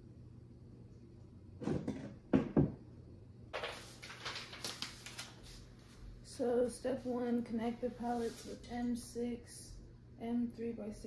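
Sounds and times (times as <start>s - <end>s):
crackly packaging rustling: 3.5s - 5.8s.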